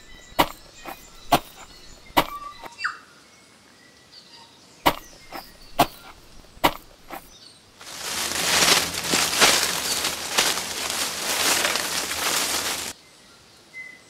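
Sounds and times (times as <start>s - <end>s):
scratching on tree bark: 0.0s - 2.7s, 4.9s - 12.9s.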